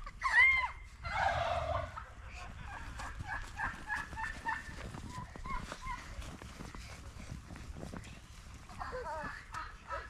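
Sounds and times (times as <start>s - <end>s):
children squealing and shouting: 0.0s - 1.8s
children yelping: 0.0s - 2.0s.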